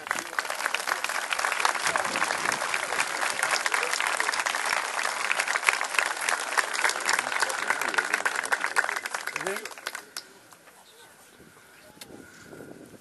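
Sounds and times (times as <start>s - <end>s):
crowd applauding: 0.0s - 10.4s.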